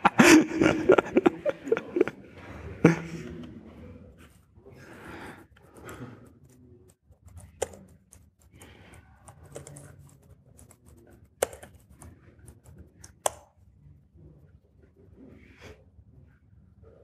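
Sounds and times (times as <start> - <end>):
laptop keyboard typing: 5.6 - 13.6.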